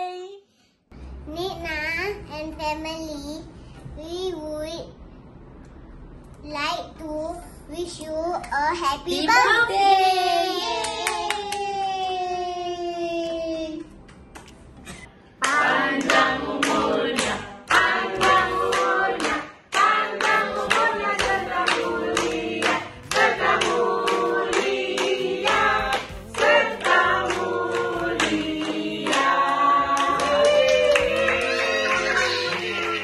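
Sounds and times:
people clapping along: 0:10.7 - 0:12.3, 0:15.4 - 0:33.0
group singing in chorus: 0:15.4 - 0:33.0.

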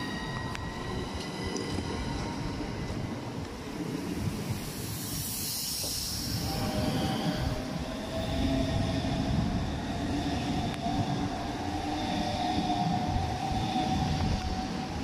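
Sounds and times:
electric train whine: 0:00.0 - 0:15.0.

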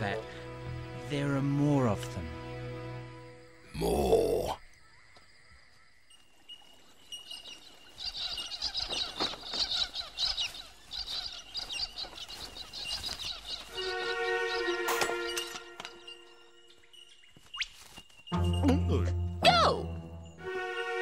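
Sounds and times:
cockatoos squawking: 0:08.0 - 0:15.8
held musical chord: 0:13.7 - 0:16.8, 0:18.3 - 0:21.0.

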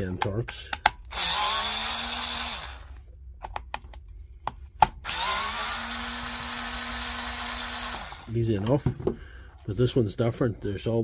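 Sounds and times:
cordless drill motor: 0:01.1 - 0:03.0, 0:05.0 - 0:08.3.

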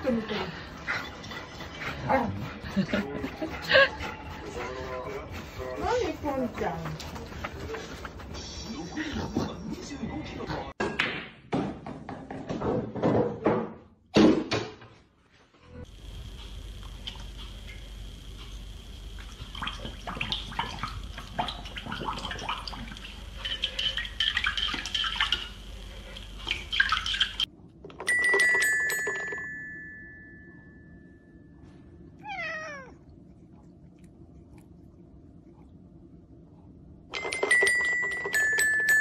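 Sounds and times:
puppy splashing water in bowl: 0:19.2 - 0:27.5
toy xylophone notes: 0:28.0 - 0:30.6, 0:37.2 - 0:39.0
cat meowing: 0:32.2 - 0:33.0.

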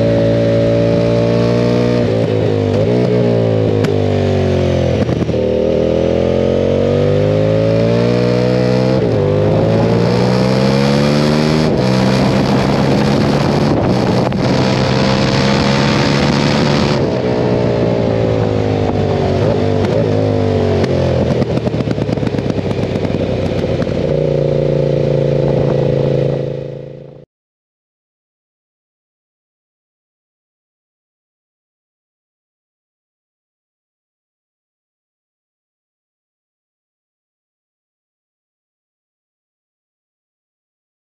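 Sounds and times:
motorcycle engine accelerating: 0:00.0 - 0:27.3.

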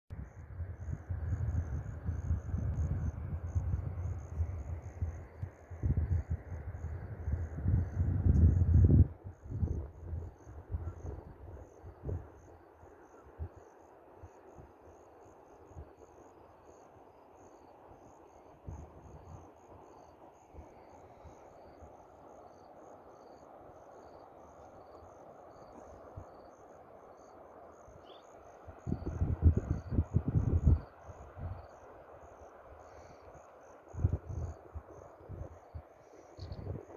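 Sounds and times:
wind on microphone: 0:00.1 - 0:12.5, 0:28.8 - 0:31.7, 0:33.9 - 0:35.8, 0:36.4 - 0:36.9
crickets chirping: 0:00.1 - 0:36.9.

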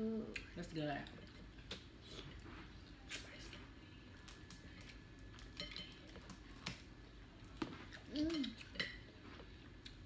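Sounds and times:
dishes and utensils clinking: 0:05.6 - 0:06.0.

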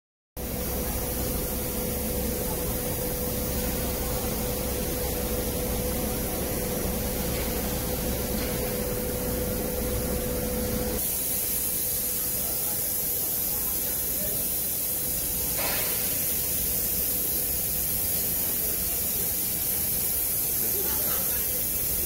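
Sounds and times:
mid-pitched machine hum: 0:00.4 - 0:12.8
cnc router hiss: 0:00.4 - 0:22.0.

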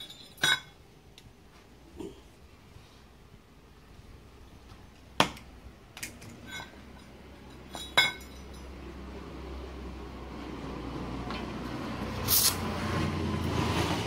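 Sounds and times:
gas torch hissing: 0:12.1 - 0:12.8.

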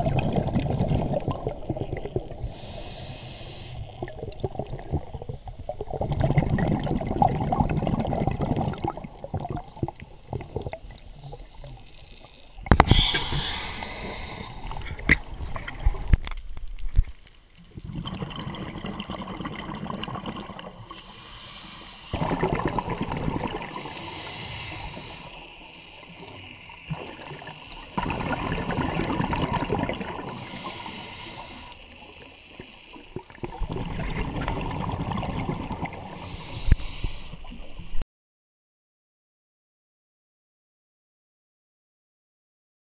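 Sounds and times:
diver exhaling bubbles underwater: 0:00.0 - 0:02.8, 0:03.9 - 0:11.8, 0:17.8 - 0:21.0, 0:22.1 - 0:25.3, 0:26.9 - 0:31.1, 0:33.1 - 0:37.0.

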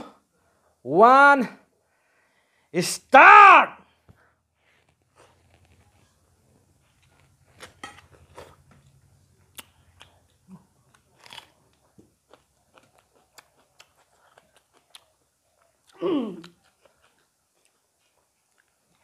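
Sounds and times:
chewing and mouth smacks: 0:06.9 - 0:19.0.

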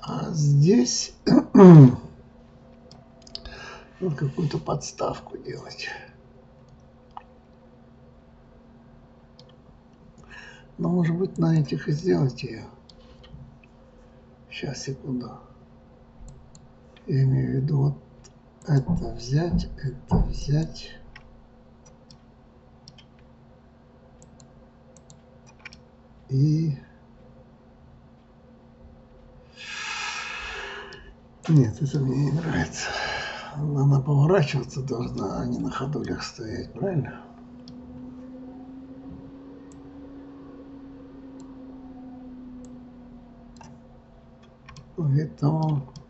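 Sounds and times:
steady low hum: 0:00.0 - 0:46.0
computer mouse clicks: 0:09.4 - 0:09.6, 0:22.8 - 0:23.3, 0:24.2 - 0:25.8, 0:44.4 - 0:44.9.

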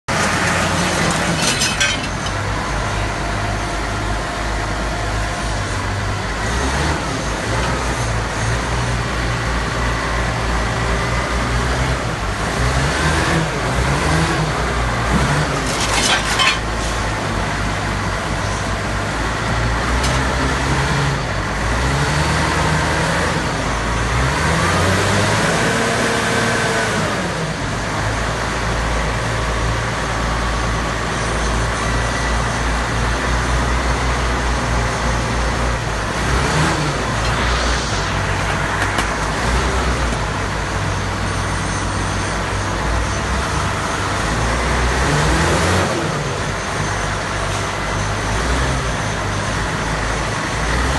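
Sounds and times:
sharp metal clanks: 0:00.1 - 0:02.5, 0:15.6 - 0:16.7
diesel engine revving: 0:00.1 - 0:50.9.

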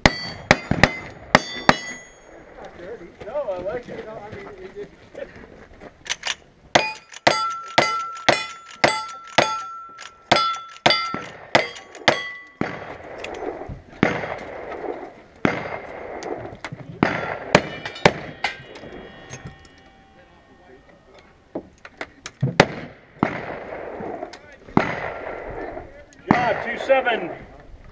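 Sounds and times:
gunshots: 0:00.0 - 0:02.0, 0:06.1 - 0:19.0, 0:22.4 - 0:27.1
ringing steel targets: 0:00.0 - 0:02.4, 0:06.7 - 0:14.3, 0:17.0 - 0:21.4.

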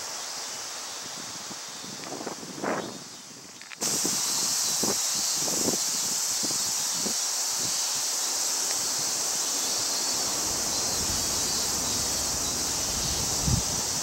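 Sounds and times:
cicadas droning: 0:00.0 - 0:14.0
low rumble: 0:10.2 - 0:13.9
wind knocking on microphone: 0:10.2 - 0:14.0.

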